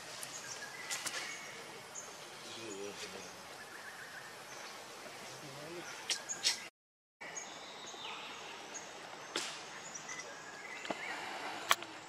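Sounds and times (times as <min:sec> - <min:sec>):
steady hiss: 0:00.0 - 0:06.7, 0:08.3 - 0:12.0
small birds chirping: 0:00.0 - 0:12.0.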